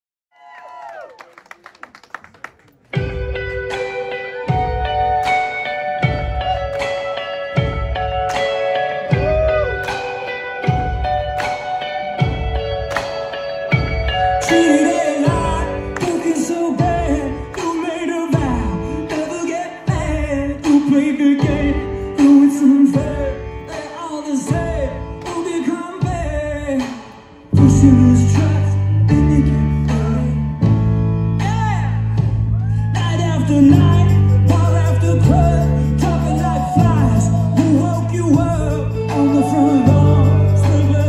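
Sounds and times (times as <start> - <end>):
rock band playing: 2.9 - 41.0
man singing lead vocal: 14.4 - 41.0.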